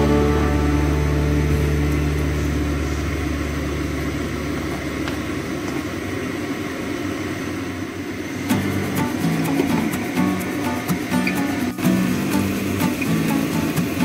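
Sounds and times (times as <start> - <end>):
background music: 0.0 - 3.7, 8.5 - 14.0
steady rushing noise at stove: 0.0 - 14.0.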